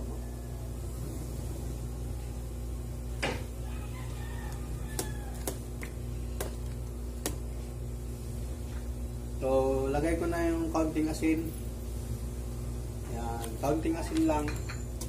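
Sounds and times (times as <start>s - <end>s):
distant rooster crowing: 0.0s - 6.0s
steady low hum: 0.0s - 15.0s.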